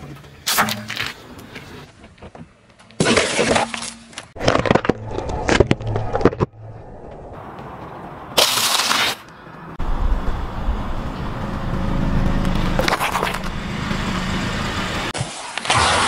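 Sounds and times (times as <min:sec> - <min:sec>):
car tyre crushing objects: 0:00.0 - 0:07.2, 0:08.3 - 0:09.4, 0:12.6 - 0:13.6.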